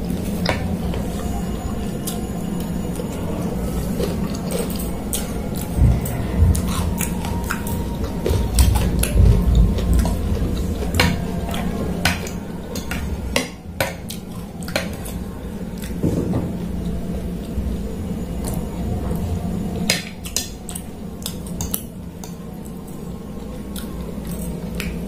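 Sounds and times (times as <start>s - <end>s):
dull low thumps: 5.8s - 7.0s, 7.9s - 11.4s.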